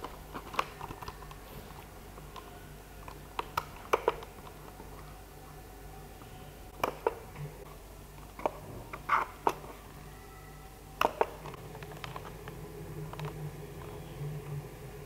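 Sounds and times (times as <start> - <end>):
keyboard and mouse clicks: 0.0 - 5.0, 6.8 - 7.5, 11.0 - 14.0
faint low hum: 0.0 - 15.0.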